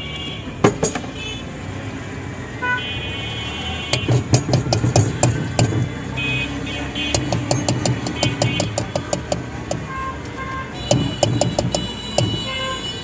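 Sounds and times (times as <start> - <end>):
vehicle horns honking: 0.0 - 1.5, 2.6 - 13.0
street traffic: 0.0 - 13.0
sharp clicks: 7.1 - 12.5.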